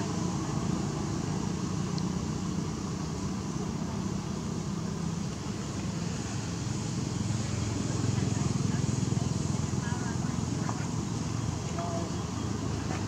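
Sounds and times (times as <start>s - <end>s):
constant hiss: 0.0s - 13.0s
low engine hum: 0.0s - 13.0s.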